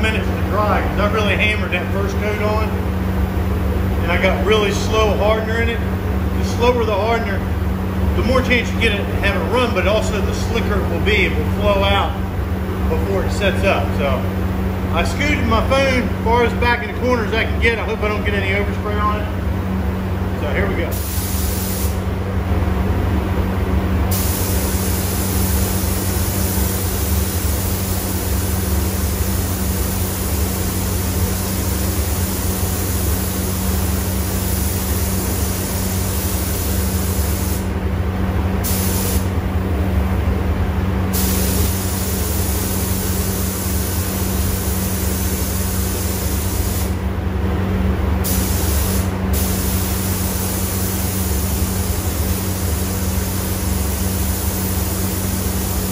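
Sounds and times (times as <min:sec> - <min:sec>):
steady low hum: 0:00.0 - 0:55.9
paint spray gun hissing: 0:20.9 - 0:22.0, 0:24.1 - 0:37.7, 0:38.6 - 0:39.3, 0:41.1 - 0:47.0, 0:48.2 - 0:55.9.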